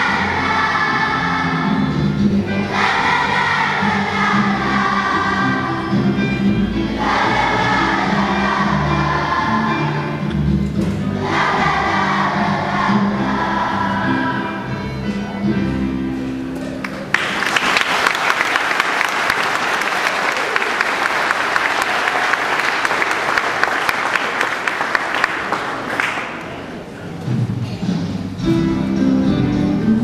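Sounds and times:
children's choir singing: 0.0 - 15.8
music: 0.0 - 19.2, 26.9 - 30.0
audience applauding: 16.7 - 26.8.

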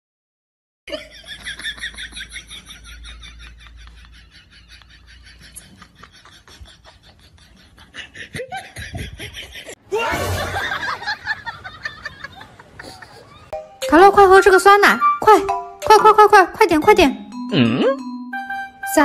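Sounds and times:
person laughing: 0.9 - 13.6.

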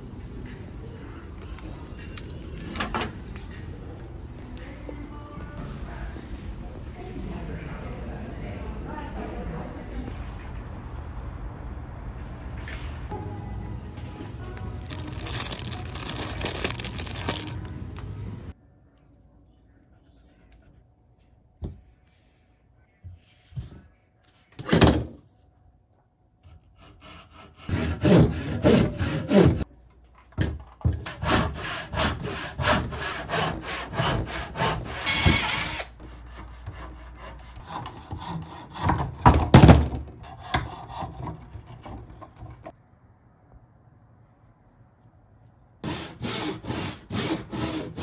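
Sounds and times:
hand saw cutting wood: 26.7 - 29.6, 31.0 - 39.2, 40.2 - 41.9, 45.8 - 48.0.

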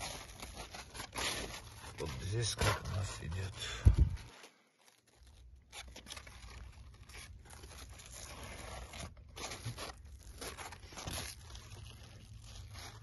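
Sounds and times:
leaves and vines rustling: 0.0 - 13.0
steady low rumble: 3.0 - 4.3.

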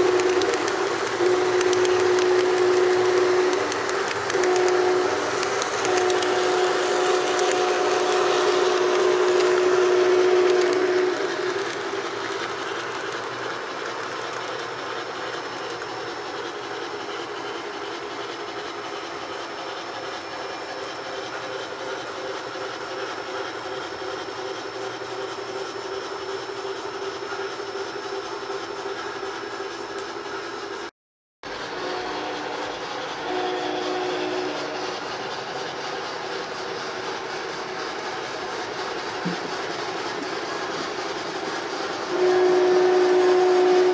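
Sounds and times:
steam locomotive whistle: 0.0 - 12.8, 31.5 - 37.4, 38.7 - 43.9
model train rolling on track: 0.0 - 43.9.

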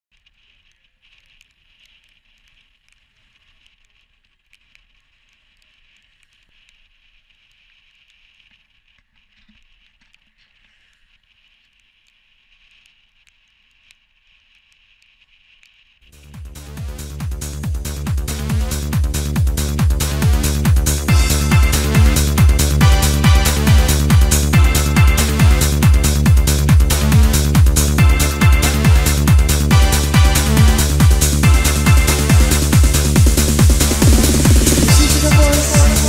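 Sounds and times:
small ticks: 0.1 - 16.1
electronic dance music: 16.1 - 36.0.

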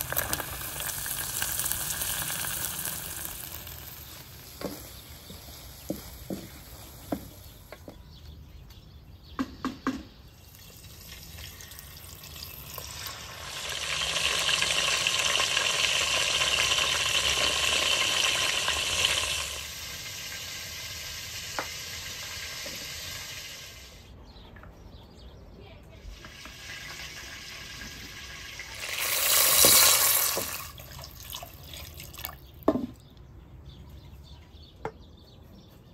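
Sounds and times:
chicken sizzling in hot oil: 0.0 - 7.3, 10.6 - 24.0, 26.1 - 31.7.

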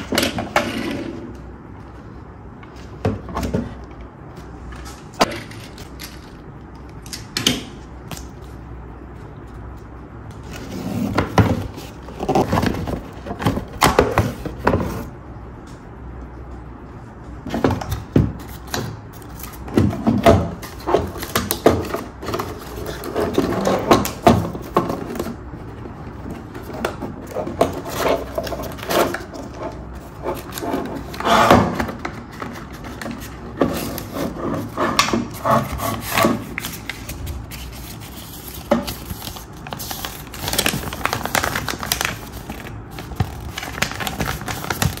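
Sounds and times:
cardboard scraping and rustling: 10.4 - 15.1, 19.4 - 45.0
paper sheet crinkling: 35.4 - 45.0.

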